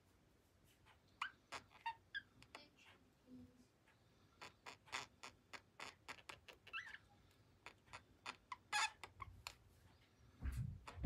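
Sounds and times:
budgerigars clicking: 4.4 - 7.0.

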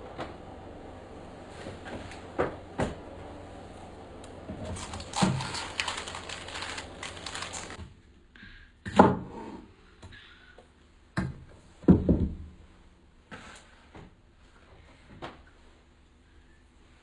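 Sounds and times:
knife cutting cabbage: 4.6 - 7.8.

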